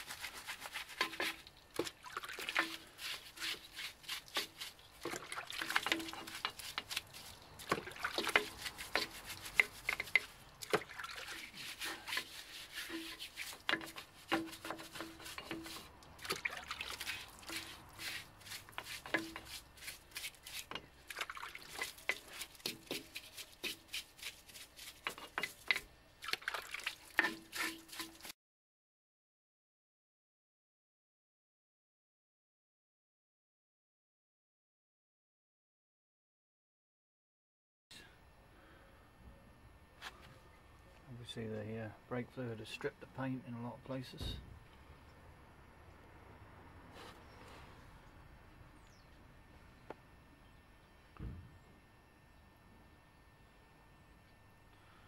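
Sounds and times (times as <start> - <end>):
water dripping and trickling: 0.0 - 14.2, 14.9 - 28.3
brush scrubbing metal: 0.0 - 28.3.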